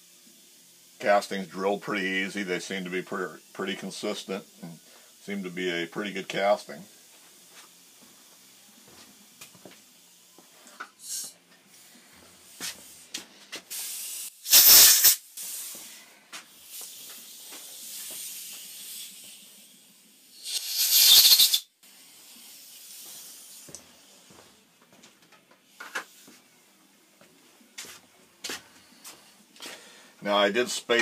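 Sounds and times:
compressed air blasts: 11.0 - 23.7.

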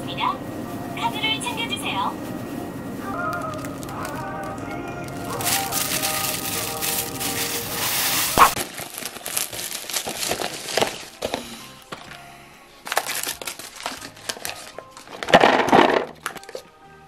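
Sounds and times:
music: 0.0 - 17.0
plastic crinkling: 0.5 - 12.2, 12.8 - 16.6
sauce sachets pulled out: 3.2 - 12.2, 12.8 - 16.6.

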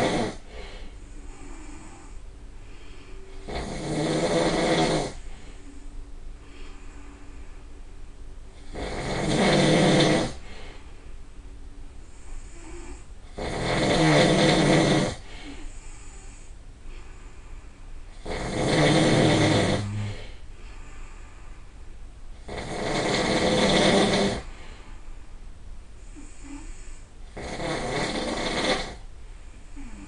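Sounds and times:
person snoring loudly: 0.0 - 0.5, 3.4 - 5.2, 8.6 - 10.5, 12.4 - 16.1, 18.1 - 20.4, 22.4 - 24.5, 26.1 - 29.0, 29.8 - 30.0.

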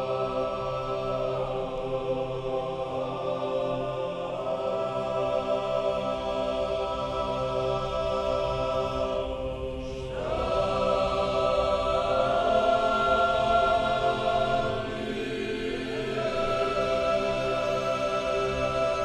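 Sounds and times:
choir singing chant: 0.0 - 19.0.

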